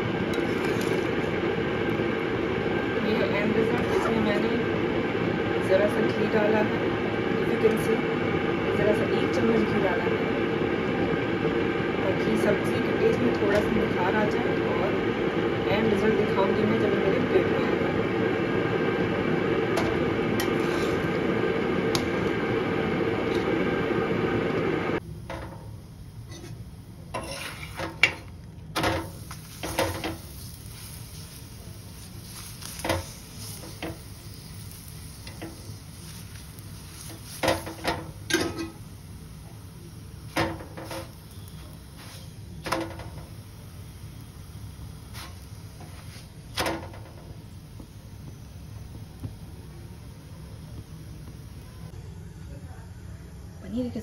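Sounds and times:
loud steady machine noise: 0.0s - 25.1s
kitchen utensils and dishes clinking: 27.2s - 28.2s, 37.4s - 38.8s.

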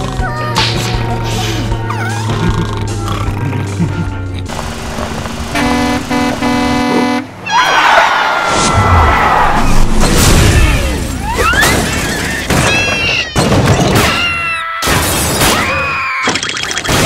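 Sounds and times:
cartoon music: 5.5s - 7.4s
cartoon characters shrieking: 7.4s - 9.8s, 10.6s - 16.6s.

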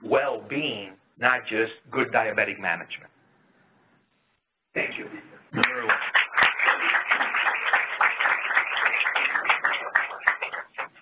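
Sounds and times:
audience applauding: 5.6s - 11.0s.

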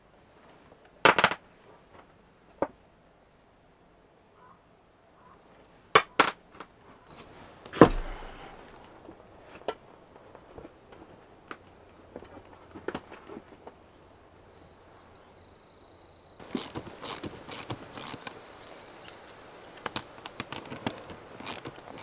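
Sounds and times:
heavy knock with low thud: 7.8s - 8.6s.

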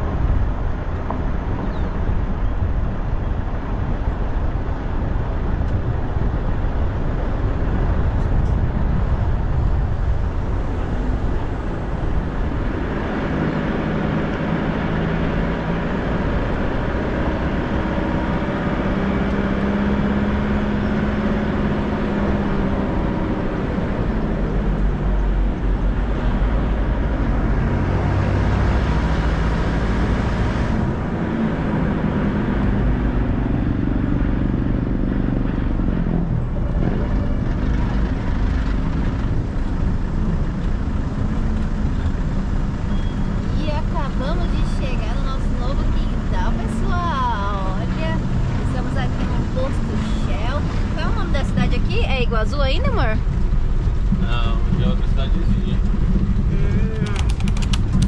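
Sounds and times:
road noise: 0.0s - 58.0s
vehicle engine rumble: 0.0s - 58.0s.

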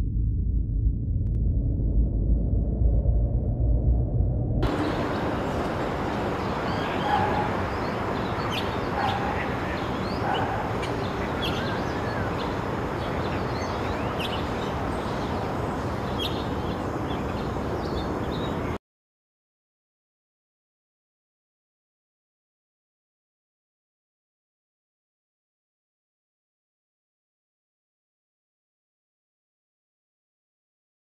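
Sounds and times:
steady rushing noise: 0.0s - 8.8s
small birds chirping: 6.1s - 18.8s.

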